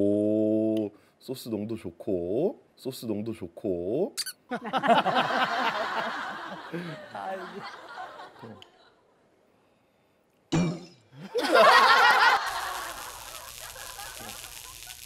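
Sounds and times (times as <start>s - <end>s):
man and woman laughing loudly: 4.5s - 8.6s, 11.2s - 15.0s.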